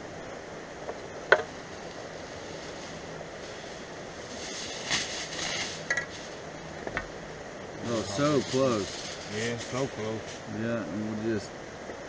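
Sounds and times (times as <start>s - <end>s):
steady outdoor hiss: 0.0s - 12.0s
aluminum foil crinkling: 7.9s - 10.5s.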